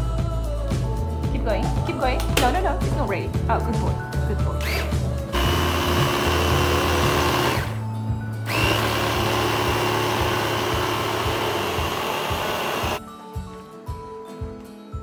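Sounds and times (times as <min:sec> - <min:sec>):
blender churning: 0:04.7 - 0:07.8, 0:08.5 - 0:13.0.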